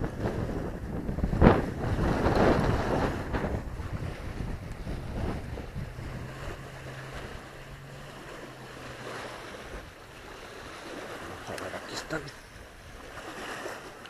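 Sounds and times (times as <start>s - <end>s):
waves lapping on concrete: 0.0s - 14.0s
wind buffeting microphone: 0.0s - 14.0s.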